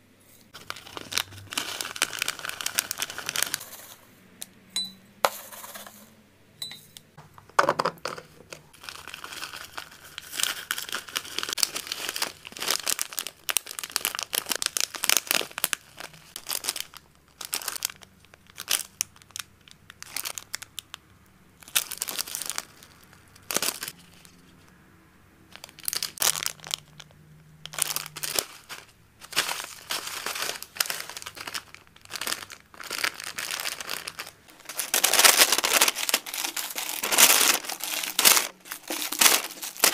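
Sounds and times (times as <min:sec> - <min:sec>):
plastic bags crinkling: 0:00.5 - 0:04.0, 0:08.0 - 0:21.0, 0:21.6 - 0:24.3, 0:25.5 - 0:39.9.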